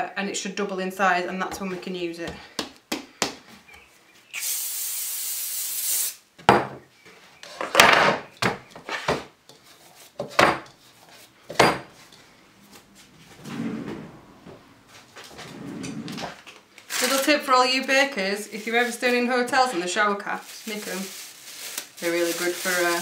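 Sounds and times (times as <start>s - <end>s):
cooking oil spray hissing: 4.3s - 6.2s, 20.6s - 23.0s.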